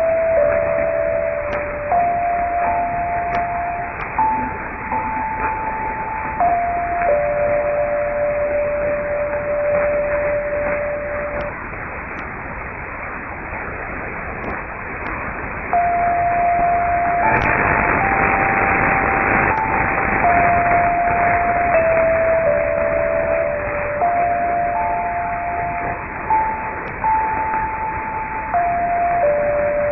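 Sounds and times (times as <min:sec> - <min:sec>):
slow tune of held tones: 0:00.0 - 0:12.4, 0:14.4 - 0:29.9
static hiss: 0:00.0 - 0:29.9.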